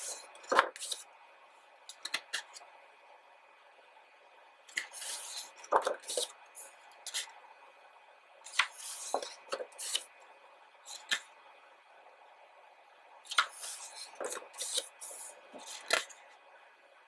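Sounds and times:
book pages turning: 0.0 - 1.0, 4.7 - 6.4, 7.0 - 7.3, 8.5 - 10.2, 10.9 - 11.3, 13.3 - 16.3.

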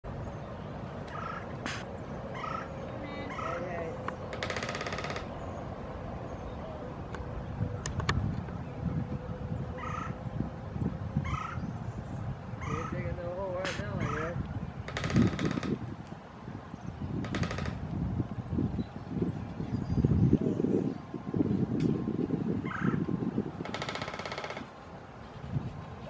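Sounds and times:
woodpecker drumming on metal roof: 3.3 - 5.4, 13.6 - 15.8, 17.2 - 17.9, 23.6 - 24.8.

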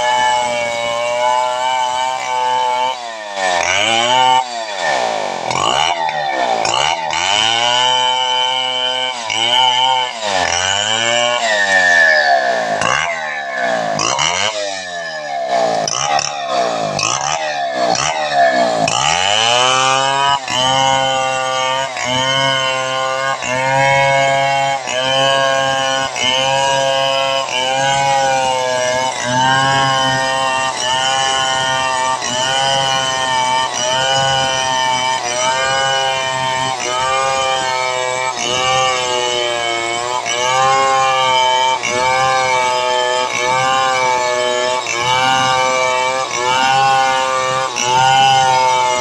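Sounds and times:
chainsaw cutting a log: 0.0 - 49.0.

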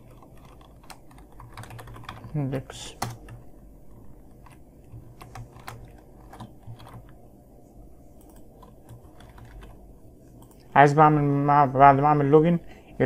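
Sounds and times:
keyboard keystrokes: 0.0 - 3.5, 4.4 - 7.2, 8.2 - 9.8
low hum: 0.0 - 13.0.

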